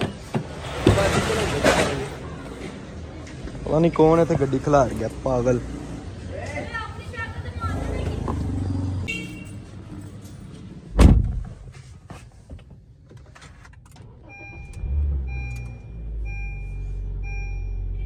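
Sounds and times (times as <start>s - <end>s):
car door shutting: 10.9s - 11.7s
car engine starting and idling: 12.9s - 18.0s.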